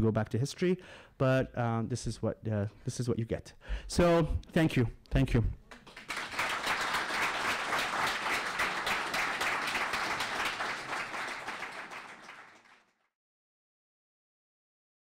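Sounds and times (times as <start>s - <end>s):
audience applauding: 5.7s - 13.0s.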